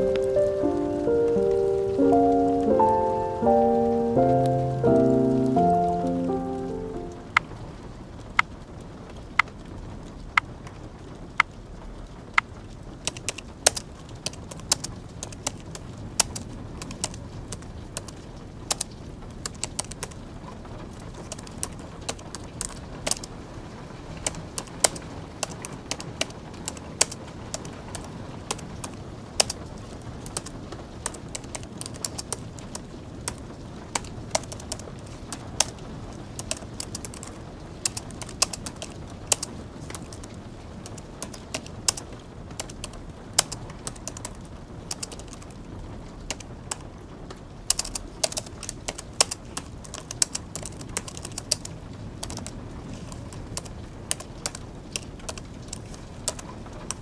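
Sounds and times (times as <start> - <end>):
soft background hiss: 0.0 - 8.6
keyboard key clicks: 13.1 - 18.1, 36.4 - 42.0, 42.6 - 44.3, 44.9 - 45.4, 47.7 - 52.5.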